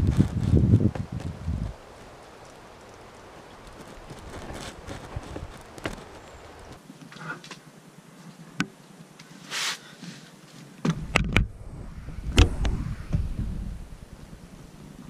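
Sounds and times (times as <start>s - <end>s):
fabric rustle: 0.0s - 6.8s
heavy thump: 10.9s - 13.9s
low rumble: 10.9s - 15.0s.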